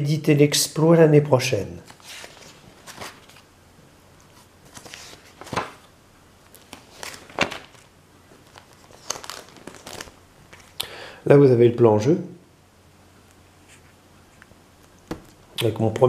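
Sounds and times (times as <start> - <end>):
binder pages rustling: 1.8 - 3.5, 4.2 - 10.8.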